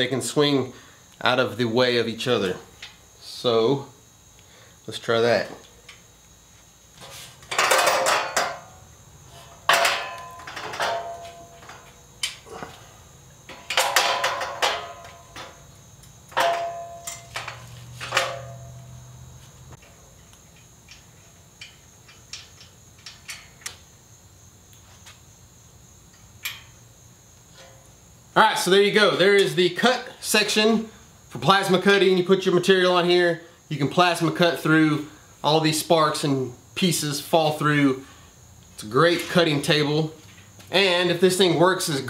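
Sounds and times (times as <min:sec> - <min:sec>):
metal table clanking and rattling: 0:07.5 - 0:08.8, 0:09.6 - 0:11.9, 0:13.5 - 0:15.6, 0:16.3 - 0:18.8
light metallic ticks and clicks: 0:19.8 - 0:23.8.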